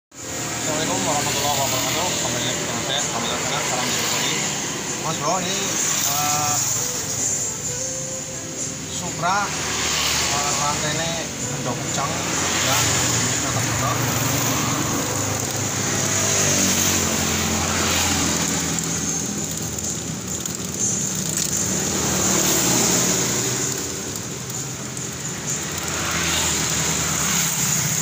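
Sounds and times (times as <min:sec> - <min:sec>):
motorcycle engine running: 0:00.2 - 0:28.0
drive chain rattling: 0:14.0 - 0:28.0.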